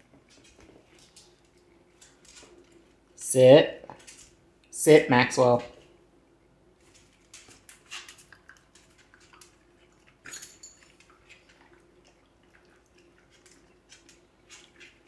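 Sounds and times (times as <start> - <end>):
dog chewing a treat: 6.9 - 10.3, 11.0 - 15.0.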